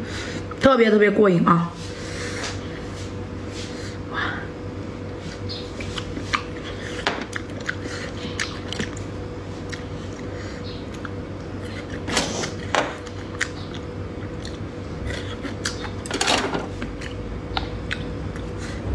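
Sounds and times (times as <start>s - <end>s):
steady low hum: 0.0s - 18.9s
wet chewing and mouth smacking: 5.8s - 16.0s, 16.8s - 18.8s.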